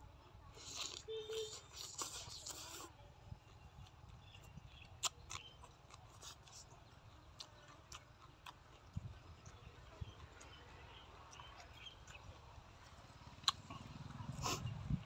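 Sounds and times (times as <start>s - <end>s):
faint chewing: 0.5s - 15.0s.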